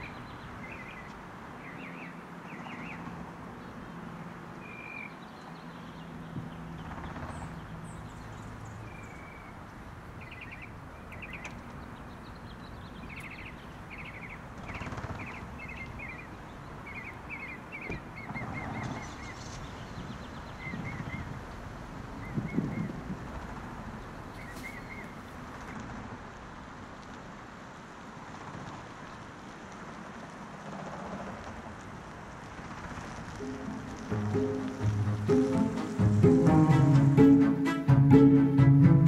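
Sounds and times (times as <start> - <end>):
small birds chirping: 0.0 - 23.1, 23.8 - 25.4.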